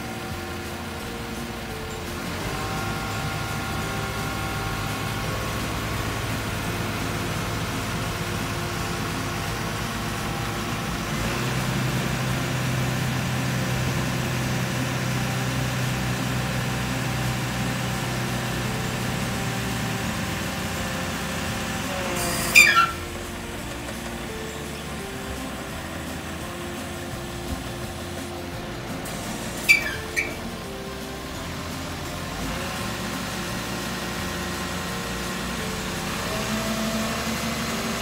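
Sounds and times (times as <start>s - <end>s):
truck diesel engine running: 0.0s - 38.0s
loud falling squeal: 22.1s - 23.2s, 29.6s - 30.6s.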